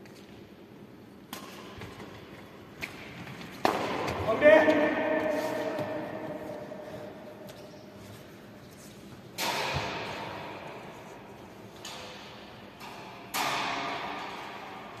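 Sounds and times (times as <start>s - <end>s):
racket hitting shuttlecock: 1.2s - 2.2s, 2.8s - 7.7s, 9.2s - 15.0s.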